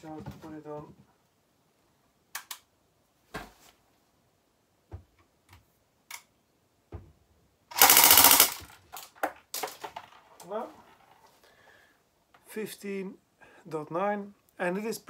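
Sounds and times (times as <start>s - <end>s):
sharp clicks: 2.3s - 2.7s
airsoft pistol full-auto burst: 7.7s - 8.7s.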